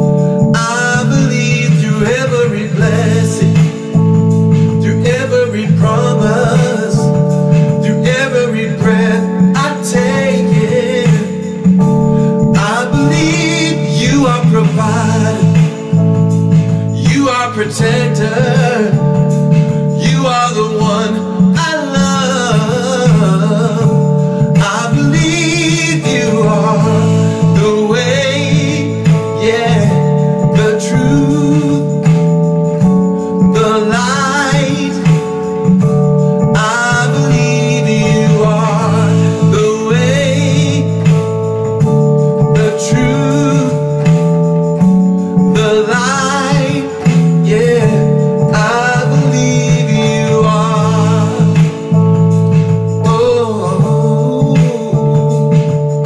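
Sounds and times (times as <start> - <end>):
guitar accompaniment: 0.0 - 56.0
man singing: 0.0 - 56.0.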